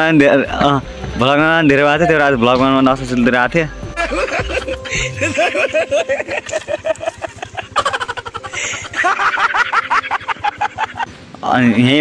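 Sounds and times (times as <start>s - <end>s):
man laughing hard: 3.9s - 11.1s.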